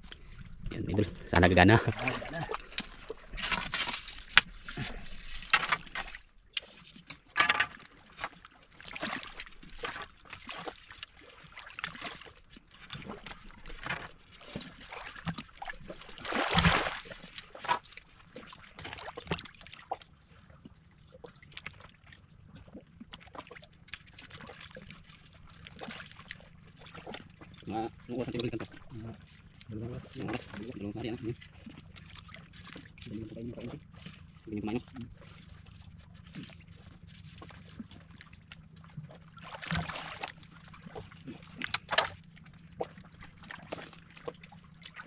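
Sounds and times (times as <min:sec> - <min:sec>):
water splashing and trickling: 0:00.0 - 0:45.0
deep splash: 0:08.8 - 0:17.7, 0:37.4 - 0:45.0.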